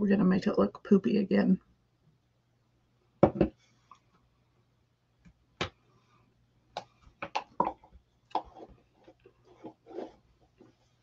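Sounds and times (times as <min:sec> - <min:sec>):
faint steady hum: 0:00.0 - 0:11.0
tins and jars knocking on table: 0:03.2 - 0:03.6, 0:07.2 - 0:07.9.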